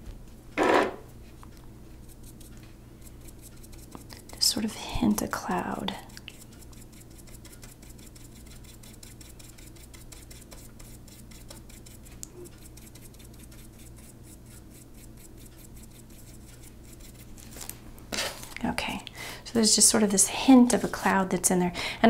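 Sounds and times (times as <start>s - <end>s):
paintbrush scratching on paper: 1.9s - 17.7s.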